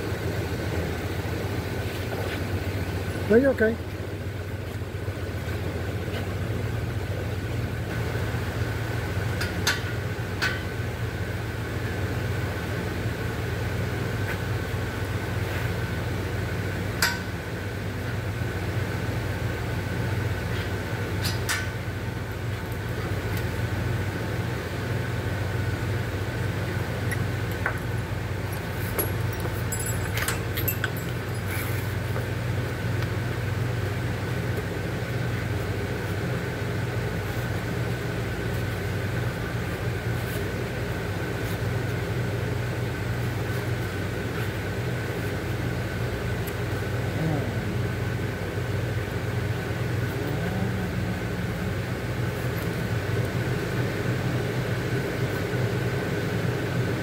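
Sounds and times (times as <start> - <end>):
low machine hum: 0.0 - 57.0
tools clinking on metal: 28.5 - 31.8.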